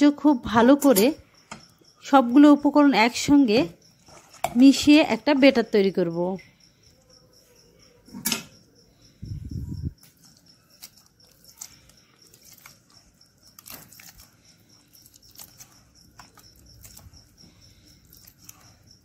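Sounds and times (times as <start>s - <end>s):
hand squeezing wet batter: 9.0s - 19.0s.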